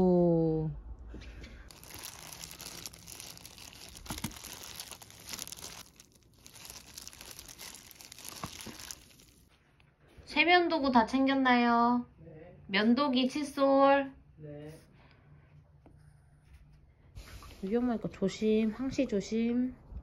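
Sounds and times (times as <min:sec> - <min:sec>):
plastic crinkling and rustling: 0:01.6 - 0:09.6.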